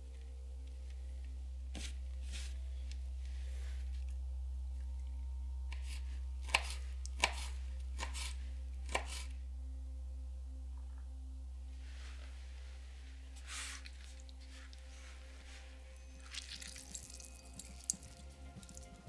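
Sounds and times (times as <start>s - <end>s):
steady low hum: 0.0s - 19.0s
knife chopping on wooden board: 5.7s - 9.3s.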